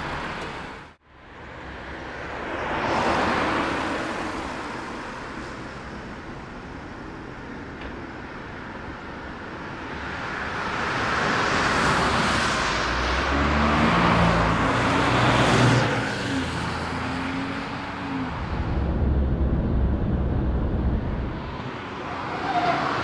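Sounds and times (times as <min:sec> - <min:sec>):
tyre and road noise: 0:00.0 - 0:23.0
car engine humming: 0:17.0 - 0:21.7.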